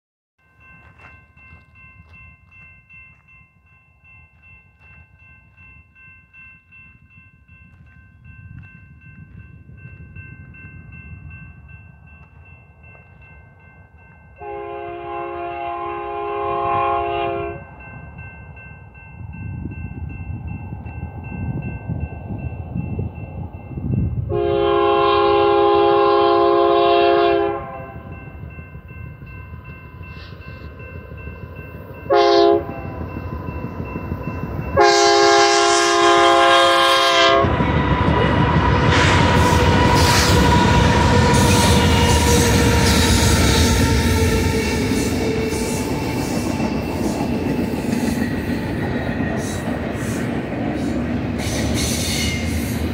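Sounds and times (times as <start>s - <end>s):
crossing signal bell ringing: 0.4s - 52.9s
locomotive air horn: 14.4s - 17.6s, 24.3s - 28.0s, 32.1s - 32.9s, 34.8s - 37.6s.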